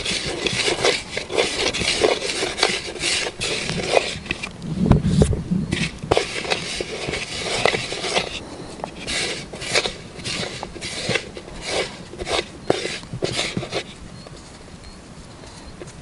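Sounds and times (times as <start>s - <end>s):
hands kneading dough in plastic bowl: 0.0s - 4.5s, 5.8s - 14.0s.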